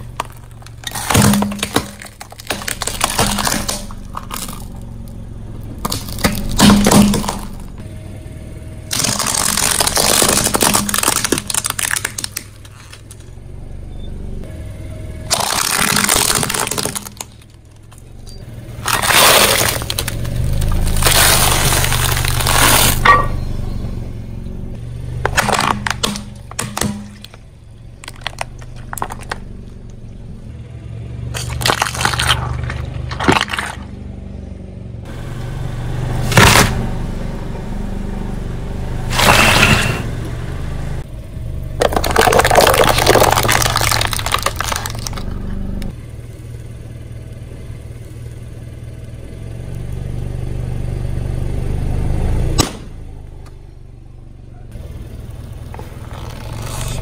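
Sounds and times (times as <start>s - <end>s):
tyre crushing plastic toys: 0.0s - 4.8s, 5.8s - 7.8s, 8.9s - 13.3s, 15.3s - 18.0s, 18.8s - 23.1s, 25.2s - 27.4s, 28.0s - 29.5s, 31.3s - 33.9s, 39.1s - 40.0s, 41.8s - 45.4s
car engine humming: 0.0s - 57.0s.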